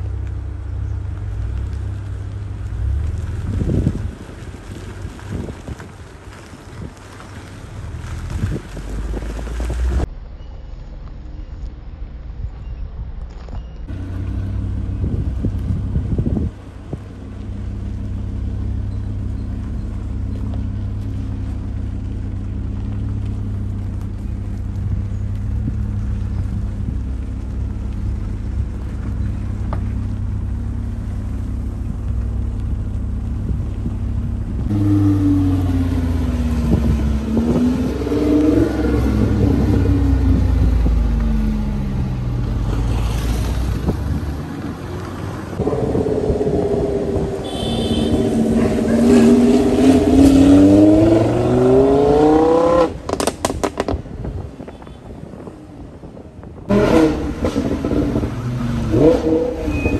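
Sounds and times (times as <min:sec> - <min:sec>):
sports car engine revving: 0:17.4 - 0:42.8, 0:43.6 - 0:54.0, 0:56.7 - 0:59.9.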